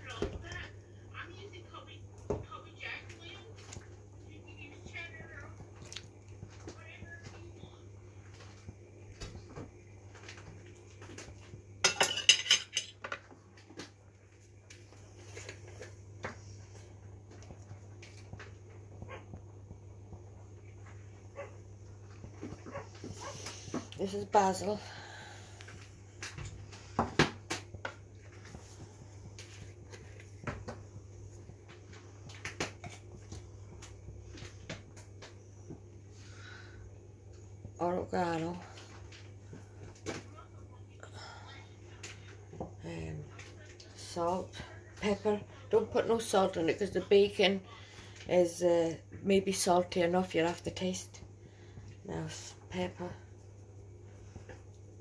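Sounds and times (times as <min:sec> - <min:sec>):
cutlery clinking on metal pot: 0:11.9 - 0:13.2.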